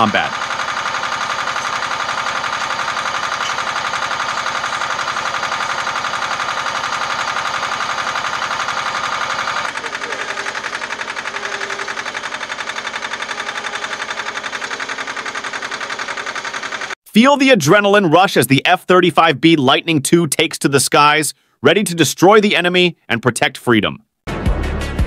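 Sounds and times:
engine running with pulsing beat: 0.0s - 17.0s.

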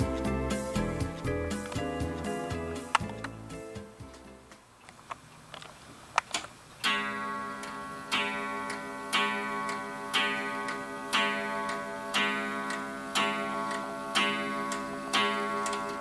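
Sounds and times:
guitar music: 0.0s - 4.5s
wall clock ticking: 6.8s - 16.0s.

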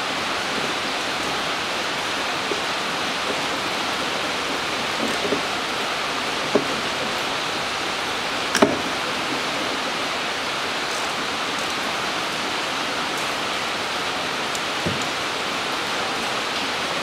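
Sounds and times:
rain hissing: 0.0s - 17.0s
dull knock: 6.5s - 6.8s, 14.8s - 15.1s.

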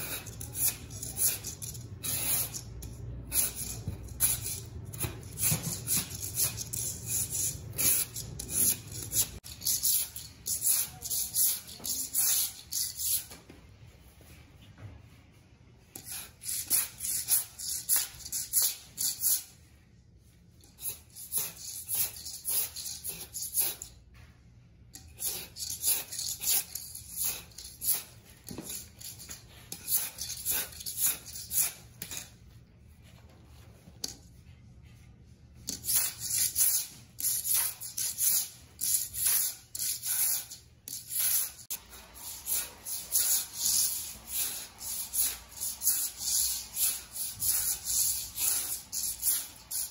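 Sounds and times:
scraper blade scraping concrete: 0.0s - 2.7s, 3.3s - 13.2s, 35.8s - 49.9s.

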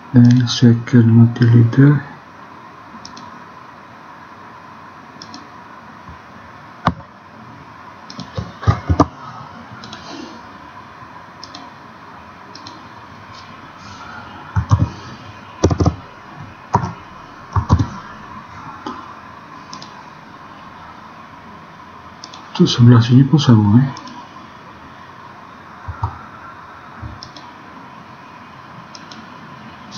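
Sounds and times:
mouse clicks: 5.2s - 5.4s, 11.4s - 11.7s, 19.7s - 19.9s, 27.2s - 27.5s
keyboard keystrokes: 8.1s - 9.1s, 11.4s - 11.7s, 14.6s - 14.9s, 15.6s - 16.0s, 16.7s - 17.9s, 19.7s - 19.9s.

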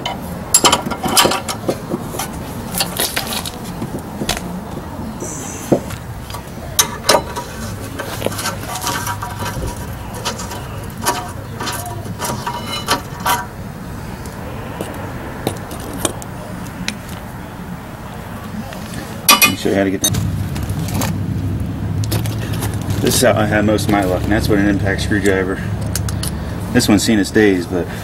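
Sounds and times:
metal brake parts clinking and rattling: 0.0s - 4.3s, 6.3s - 13.6s, 19.2s - 20.2s, 25.2s - 26.4s.

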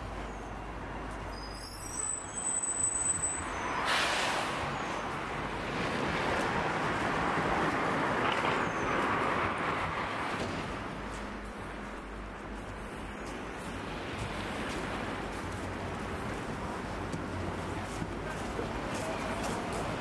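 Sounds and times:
rush of passing traffic: 0.0s - 20.0s
high squeal: 1.3s - 5.1s.

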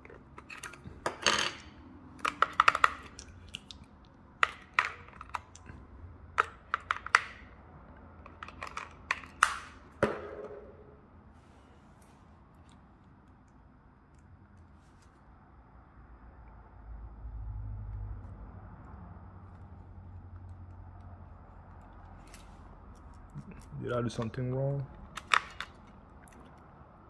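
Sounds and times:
batteries clicking into compartment: 8.2s - 9.8s, 25.0s - 26.0s.

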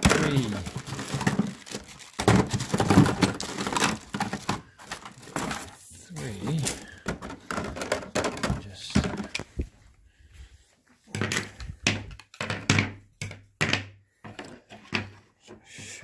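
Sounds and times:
plastic plates clattering on stone: 0.0s - 5.7s, 6.6s - 9.5s.

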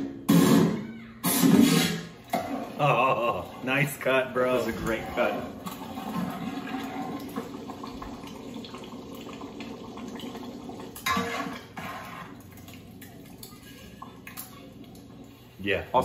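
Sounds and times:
metal ladle scraping pot: 11.0s - 12.4s.

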